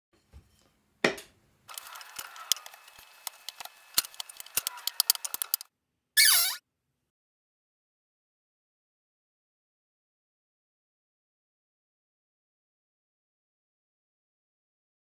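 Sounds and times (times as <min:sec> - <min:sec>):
wooden pieces clicking and knocking: 0:01.7 - 0:05.7.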